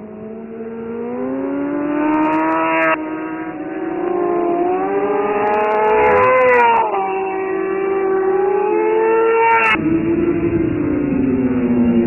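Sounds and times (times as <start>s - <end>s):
motorcycle engines accelerating: 0.0s - 12.0s.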